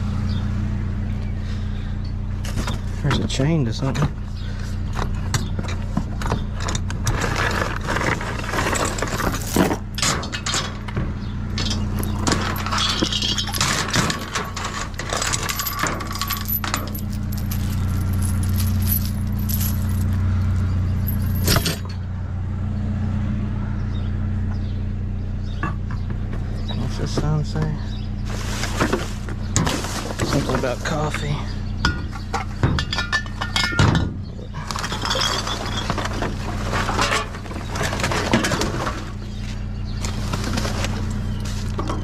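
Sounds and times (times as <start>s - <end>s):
vehicle engine idling: 0.0s - 42.0s
trash clattering: 6.3s - 22.0s, 31.9s - 39.2s
metal chain clinking and rattling: 6.6s - 10.8s, 11.6s - 22.0s, 34.6s - 36.2s.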